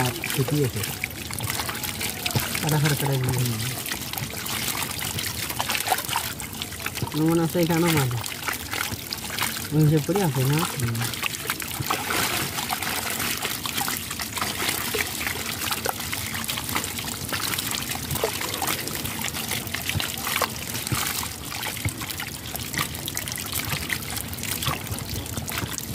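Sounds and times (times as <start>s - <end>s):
water trickling and splashing: 0.0s - 25.9s
fish flapping in wet net: 11.2s - 23.2s.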